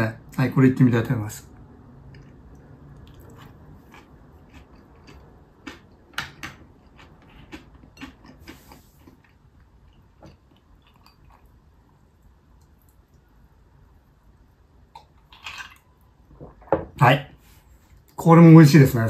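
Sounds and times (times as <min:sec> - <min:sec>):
close chewing mouth sounds: 0:02.0 - 0:11.6.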